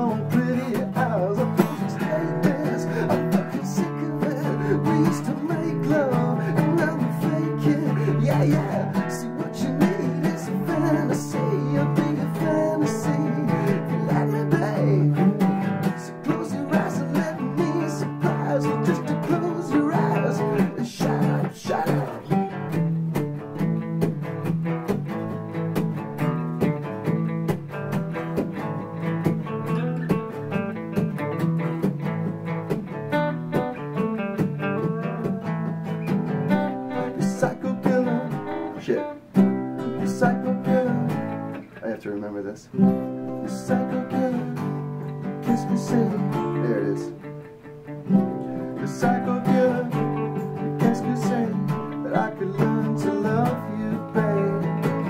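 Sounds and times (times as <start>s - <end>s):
acoustic guitar playing: 0.0s - 55.0s.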